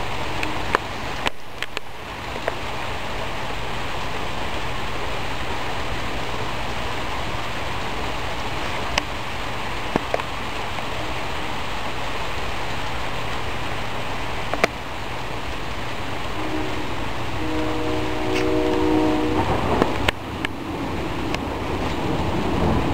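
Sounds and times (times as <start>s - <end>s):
heavy rain pouring: 0.0s - 22.9s
horn sounding a chord: 16.3s - 19.8s.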